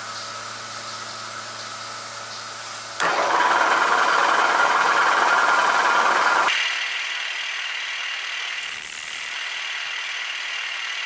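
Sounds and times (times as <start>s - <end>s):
drill boring through steel: 3.0s - 11.0s
machine humming: 3.0s - 11.0s.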